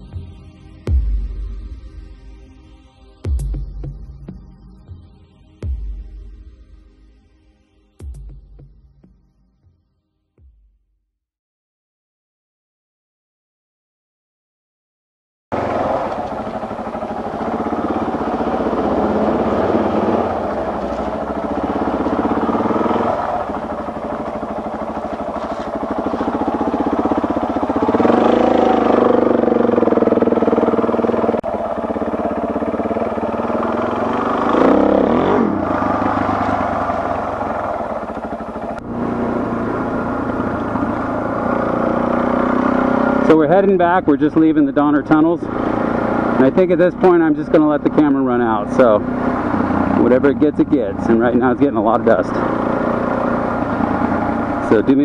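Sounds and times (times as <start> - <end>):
motorcycle engine revving: 15.5 - 55.0.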